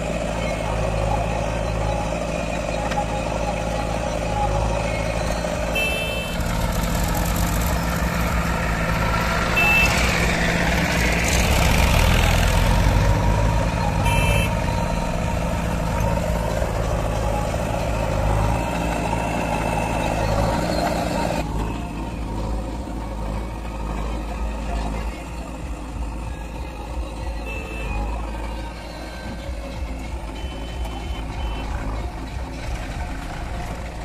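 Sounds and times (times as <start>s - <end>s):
diesel engines running: 0.0s - 34.0s
short high beep: 5.8s - 6.4s, 9.6s - 10.0s, 14.0s - 14.6s.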